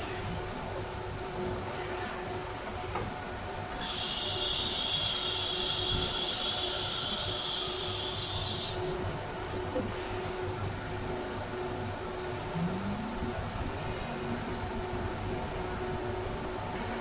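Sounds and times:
machine humming: 0:09.2 - 0:16.8.

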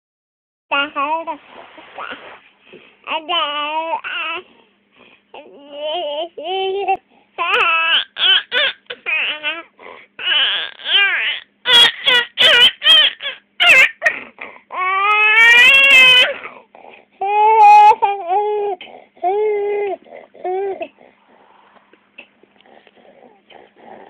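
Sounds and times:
infant babbling: 0:03.1 - 0:04.5, 0:05.4 - 0:21.2, 0:22.2 - 0:24.0.

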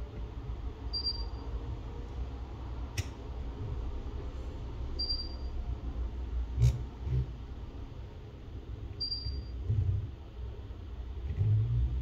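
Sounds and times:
sharp click: 0:03.0 - 0:03.2.

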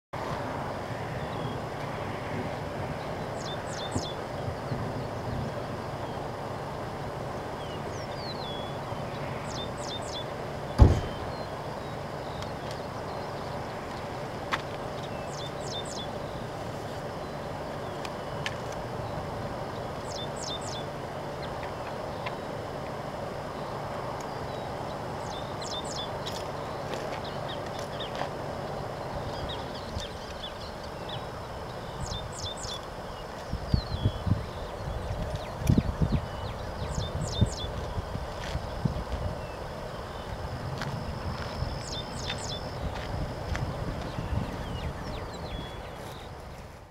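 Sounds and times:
wind noise on microphone: 0:00.2 - 0:06.3, 0:09.8 - 0:11.6, 0:29.0 - 0:46.9
bird chirping: 0:03.0 - 0:06.8, 0:07.6 - 0:14.1, 0:15.0 - 0:22.5, 0:23.6 - 0:38.0, 0:41.1 - 0:42.9, 0:44.0 - 0:46.6
low thump: 0:10.8 - 0:11.3.

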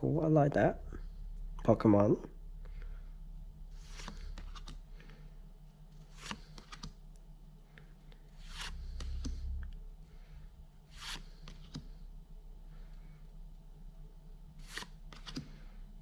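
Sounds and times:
cards swishing off a stack: 0:03.8 - 0:04.8, 0:06.1 - 0:06.9, 0:08.4 - 0:09.5, 0:10.9 - 0:12.0, 0:14.6 - 0:15.6.

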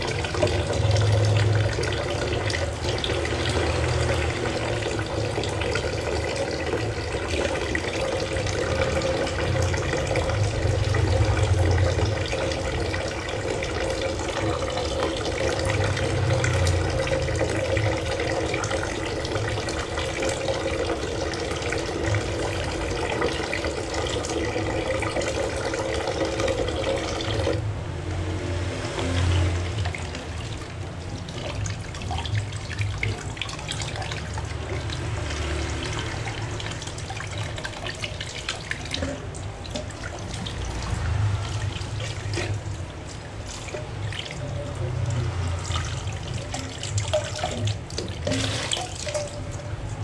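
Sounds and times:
sponge scrubbing metal bowl: 0:28.9 - 0:50.0.

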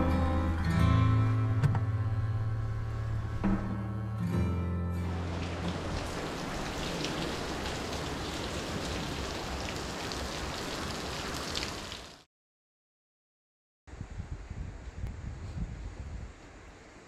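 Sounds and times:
steady rain falling: 0:05.0 - 0:12.3.

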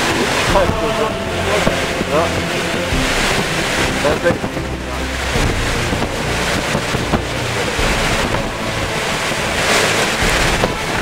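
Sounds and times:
strong wind buffeting microphone: 0:00.0 - 0:11.0.

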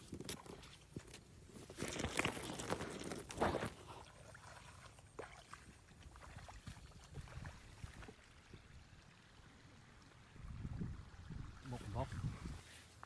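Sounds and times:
stalks rustling: 0:00.0 - 0:04.1
low wind rumble on microphone: 0:10.3 - 0:12.7.

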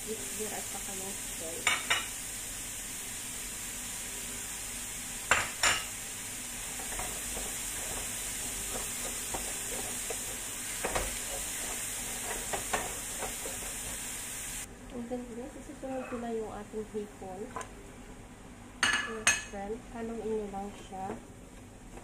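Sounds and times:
vegetables sizzling in frying pan: 0:00.0 - 0:14.7
wooden spoon stirring and scraping: 0:06.7 - 0:14.2.

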